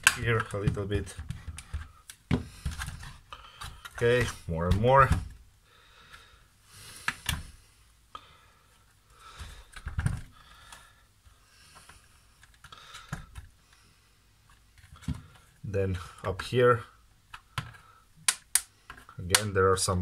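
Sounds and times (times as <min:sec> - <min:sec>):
plastic clips snapping: 0:00.0 - 0:04.4, 0:17.3 - 0:19.5.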